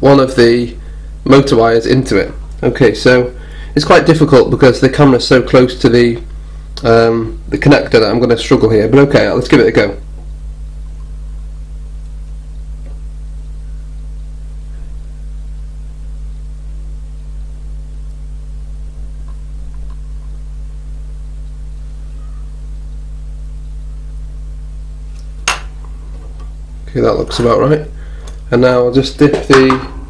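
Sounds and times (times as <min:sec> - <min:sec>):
electrical mains hum: 0:00.0 - 0:30.0.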